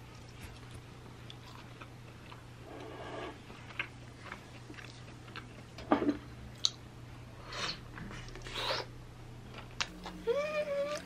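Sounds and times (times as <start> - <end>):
chewing: 0.0 - 5.6.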